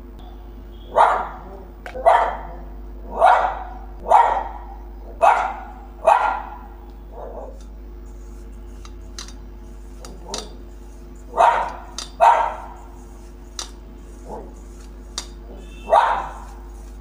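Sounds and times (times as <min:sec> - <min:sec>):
dog barking: 0:00.9 - 0:07.6, 0:11.3 - 0:12.8, 0:14.2 - 0:14.5, 0:15.5 - 0:16.6.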